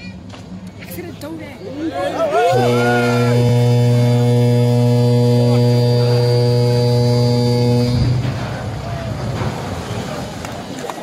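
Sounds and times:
ship's horn blast: 2.1 - 10.5.

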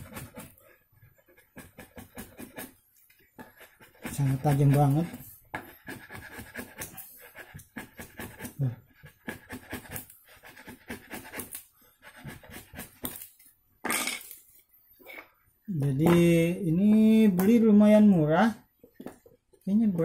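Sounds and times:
chisel scraping wooden board: 0.0 - 2.8, 3.4 - 13.3.

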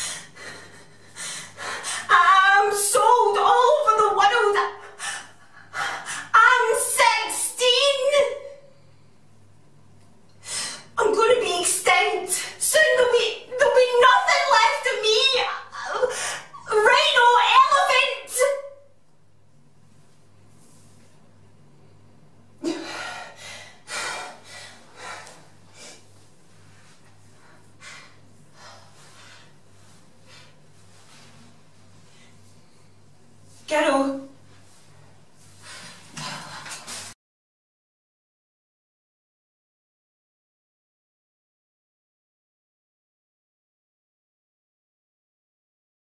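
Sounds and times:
woman sobbing and wailing: 13.6 - 18.1
woman gasping: 22.6 - 26.0.

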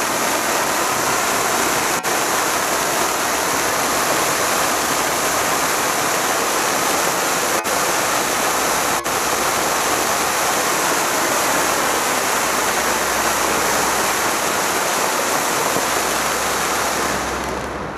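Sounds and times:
firework fountain hissing: 0.0 - 17.9.

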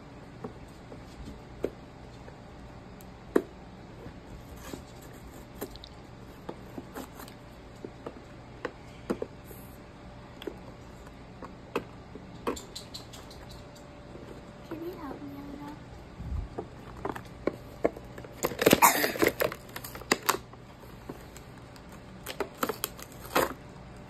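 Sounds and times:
plastic packaging crackling: 18.1 - 20.6, 21.2 - 23.6.

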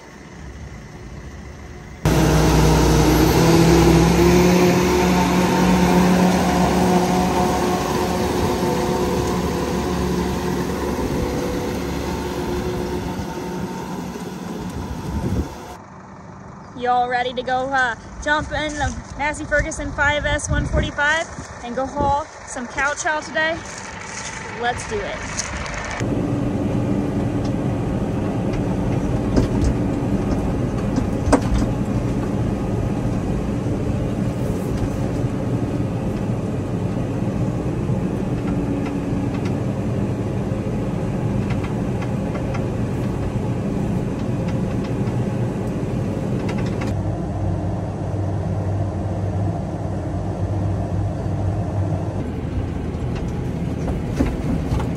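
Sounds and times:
tractor engine drone: 0.0 - 54.9.

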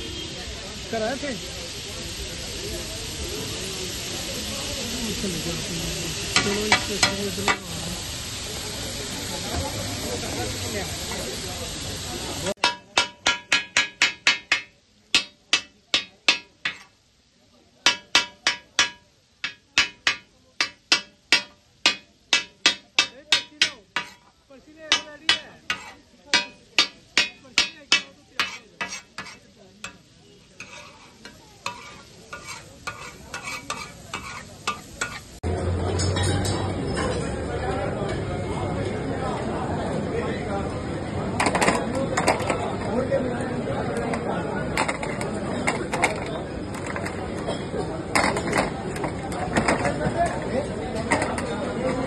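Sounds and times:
food sizzling: 0.0 - 37.0, 39.8 - 52.0
metal spatulas clacking on griddle: 6.4 - 7.6, 12.6 - 16.9, 17.8 - 35.4, 36.0 - 37.3, 41.4 - 43.0, 43.9 - 52.0.

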